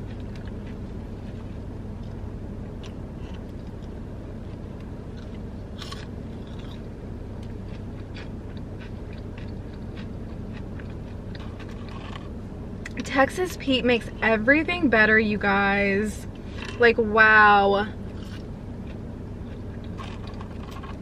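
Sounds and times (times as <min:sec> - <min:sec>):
person chewing food: 0:00.0 - 0:13.0, 0:18.0 - 0:21.0
low hum: 0:00.0 - 0:21.0.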